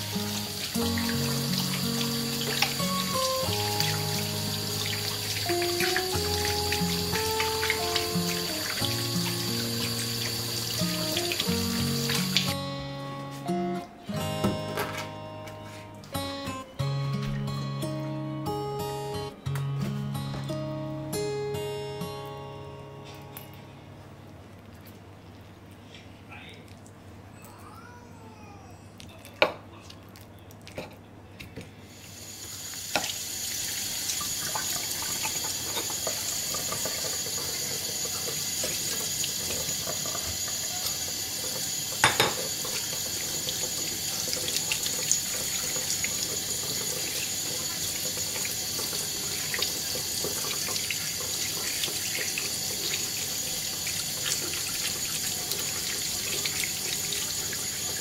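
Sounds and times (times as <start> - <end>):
tap water running: 0.0 - 12.8, 31.9 - 58.0.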